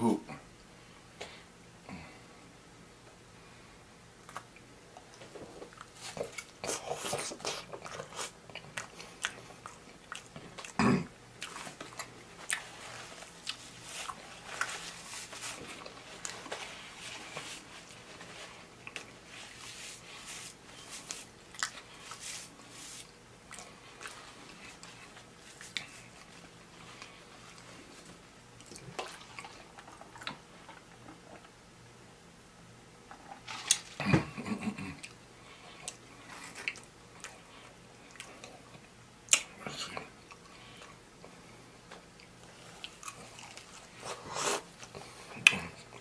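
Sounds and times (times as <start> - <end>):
person chewing: 4.2 - 10.8, 11.4 - 27.8, 28.6 - 31.5, 35.8 - 41.0, 42.1 - 46.0.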